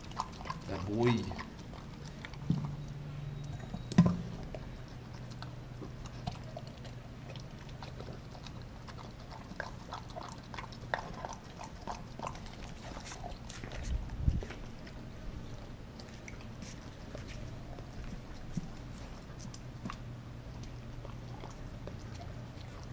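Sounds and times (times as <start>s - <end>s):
dog chewing and crunching: 0.0s - 22.9s.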